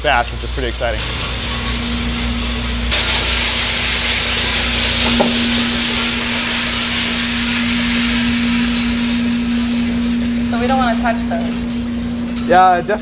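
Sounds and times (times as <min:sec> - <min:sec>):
machine motor hum: 0:01.0 - 0:13.0
coffee beans pouring hiss: 0:02.9 - 0:10.6.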